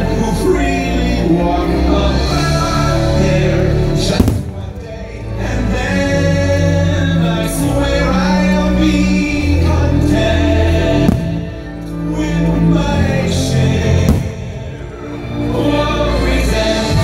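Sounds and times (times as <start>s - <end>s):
choir singing sustained notes: 0.0s - 17.0s
orchestral music: 0.0s - 17.0s
fireworks bursting: 14.0s - 14.8s.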